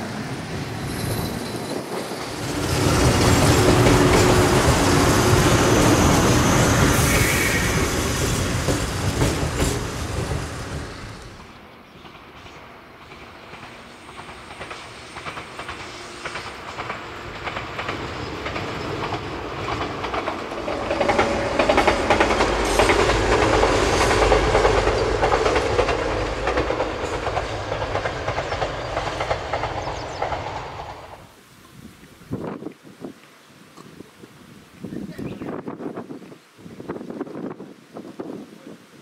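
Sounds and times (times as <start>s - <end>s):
train passing: 0.0s - 31.3s
wheels clacking over rail joints: 1.0s - 31.3s.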